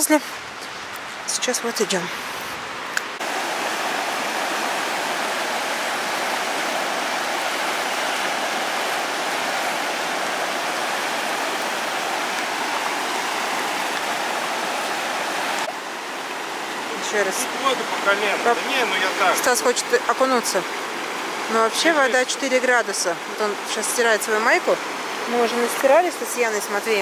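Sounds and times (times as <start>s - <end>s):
river rushing over rapids: 0.0s - 27.0s.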